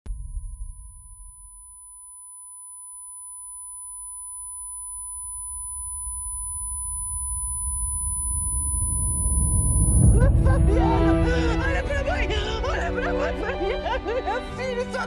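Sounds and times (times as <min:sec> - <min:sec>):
electronic sine tone: 0:00.1 - 0:10.6
high whine: 0:00.1 - 0:14.4
low rumble: 0:05.7 - 0:14.2.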